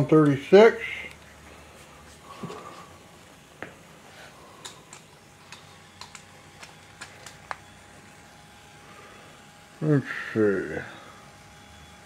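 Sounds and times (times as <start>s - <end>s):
faint high hum: 0.0s - 12.0s
light irregular clicks: 4.6s - 7.6s.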